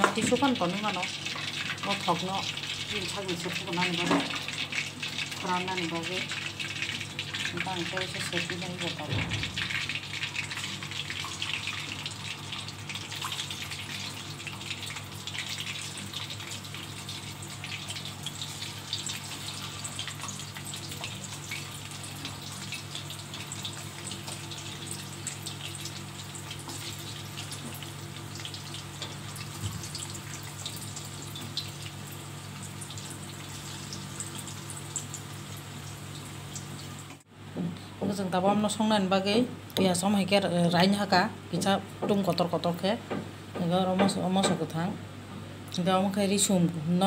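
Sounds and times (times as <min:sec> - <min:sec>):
chicken deep-frying in oil: 0:00.0 - 0:37.3.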